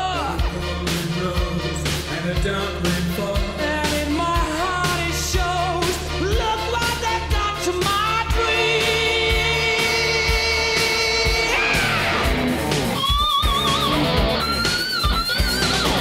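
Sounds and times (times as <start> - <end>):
person singing: 0.0 - 12.3
steady drum beat: 0.0 - 16.0.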